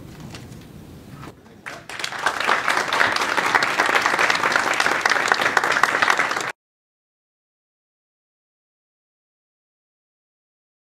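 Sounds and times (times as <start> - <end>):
audience applauding: 1.5 - 6.6.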